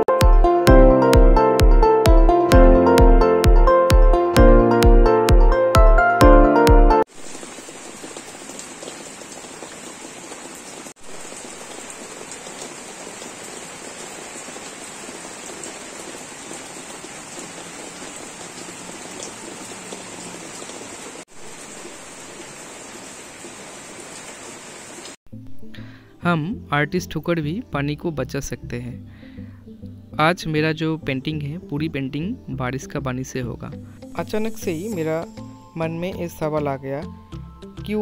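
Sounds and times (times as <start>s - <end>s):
steady rainfall hiss: 7.1s - 25.2s.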